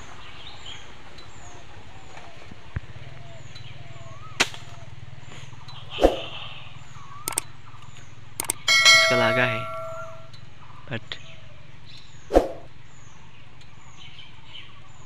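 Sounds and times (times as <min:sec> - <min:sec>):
other bird calls: 0:00.0 - 0:10.4
slingshot crack: 0:04.4 - 0:04.8
bird chirping high and falling: 0:07.2 - 0:07.4, 0:08.4 - 0:10.3.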